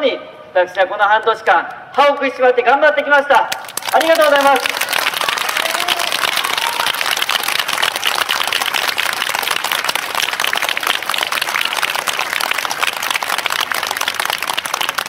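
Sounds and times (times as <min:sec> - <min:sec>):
crowd applauding: 0:03.6 - 0:15.0.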